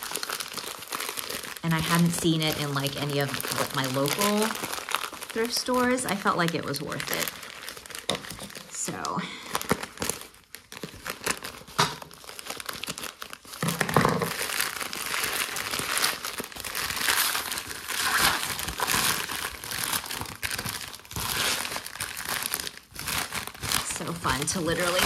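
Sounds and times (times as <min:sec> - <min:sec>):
plastic mailer bag crinkling: 0:00.0 - 0:25.0.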